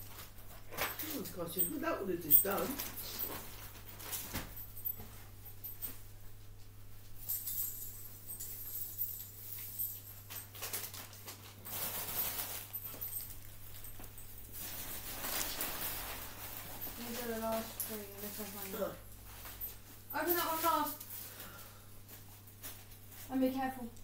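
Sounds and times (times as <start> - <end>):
low electrical hum: 0.0 - 24.0
wrapping paper rustling: 9.5 - 24.0.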